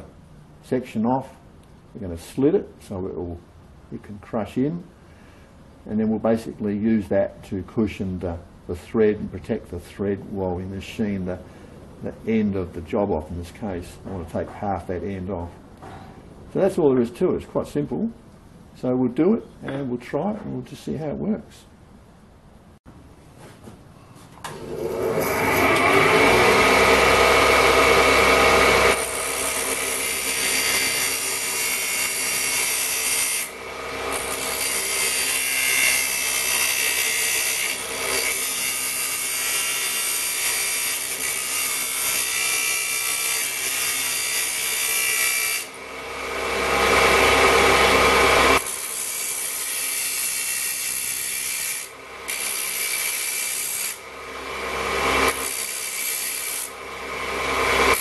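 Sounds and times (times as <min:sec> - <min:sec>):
cut-off saw grinding metal: 0:24.5 - 0:58.0.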